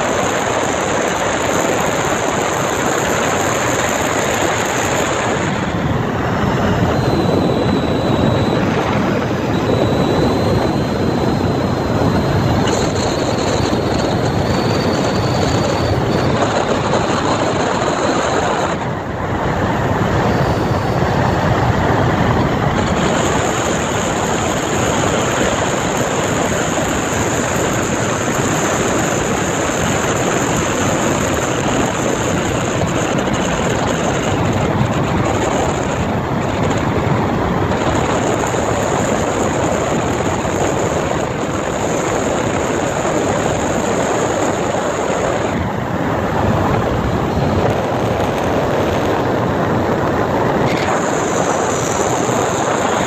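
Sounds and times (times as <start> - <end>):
boat motor droning: 0.0 - 53.0.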